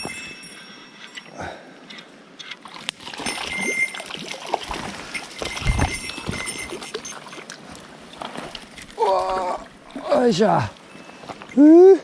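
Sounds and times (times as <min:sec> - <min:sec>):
water splashing and sloshing: 0:02.1 - 0:11.6.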